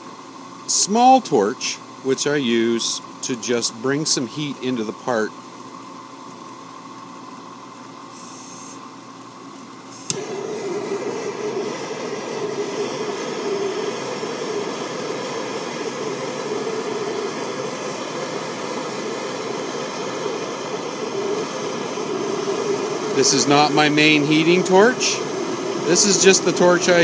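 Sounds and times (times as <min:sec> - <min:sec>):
drill press motor running: 0:05.7 - 0:27.0
gas torch hissing: 0:09.9 - 0:27.0
gas torch lighting click: 0:10.0 - 0:10.4.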